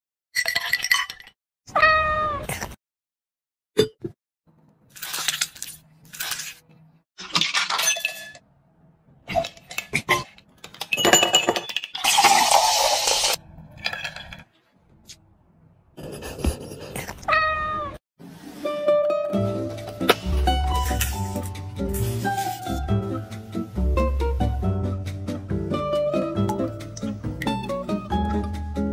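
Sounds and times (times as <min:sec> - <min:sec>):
fizzy soda pouring: 0:12.0 - 0:13.4
light music: 0:18.5 - 0:28.9.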